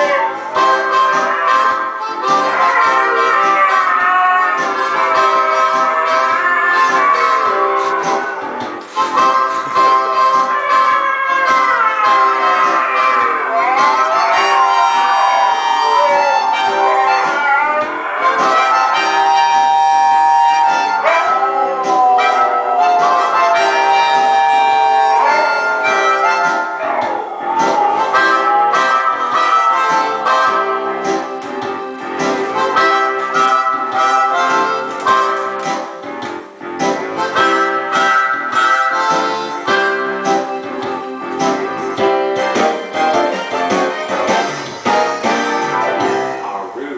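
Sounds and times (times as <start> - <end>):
huskies howling: 0.0 - 31.1
blues music with harmonica: 0.0 - 46.9.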